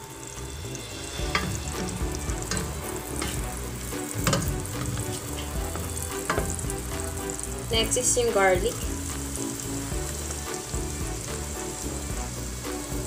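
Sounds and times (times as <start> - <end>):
butter sizzling in a pan: 0.0 - 13.0
utensil knocking against pan: 1.2 - 7.3.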